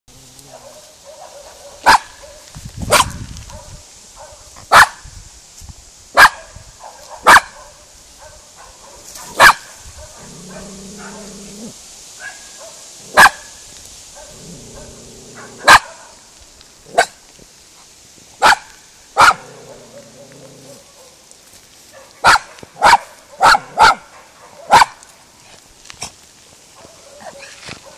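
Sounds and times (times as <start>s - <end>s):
dog barking: 0.5s - 5.0s, 6.2s - 11.2s, 12.2s - 13.5s, 14.2s - 16.2s, 16.9s - 17.2s, 18.4s - 20.0s, 20.7s - 21.2s, 21.9s - 25.0s, 26.8s - 27.9s.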